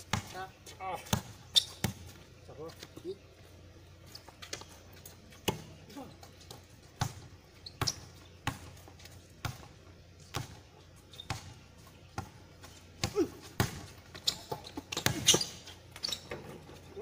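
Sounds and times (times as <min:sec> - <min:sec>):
basketball bouncing on hard court: 0:00.1 - 0:00.4, 0:01.0 - 0:02.2, 0:06.5 - 0:09.7, 0:10.3 - 0:10.6, 0:11.2 - 0:12.4, 0:13.0 - 0:16.5.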